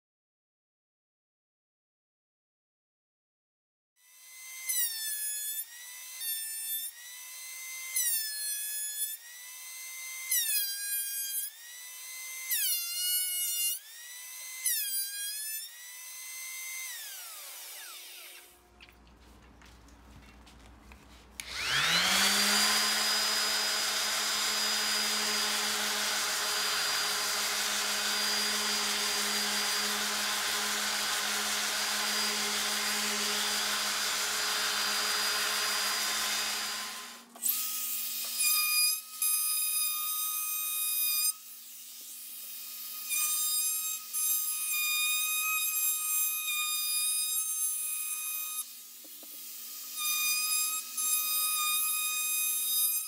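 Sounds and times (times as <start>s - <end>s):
orbital sander running on wood: 21.4s - 38.4s.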